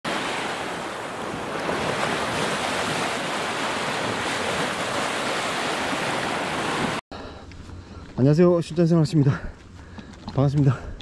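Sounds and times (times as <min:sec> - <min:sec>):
waves washing on sandy beach: 0:00.1 - 0:07.0.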